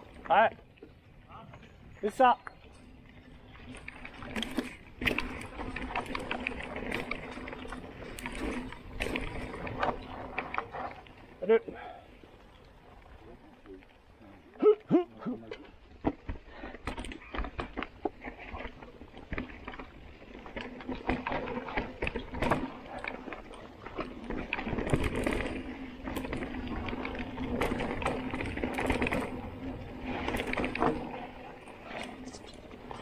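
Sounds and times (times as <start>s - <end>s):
bike chain and frame rattling: 0.0s - 14.6s, 15.4s - 33.0s
tyres crunching over dirt and leaves: 15.6s - 33.0s.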